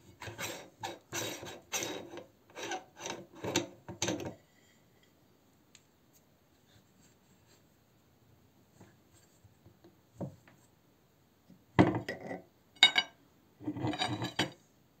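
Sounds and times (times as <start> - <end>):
metal parts scraping and clattering: 12.8 - 14.6.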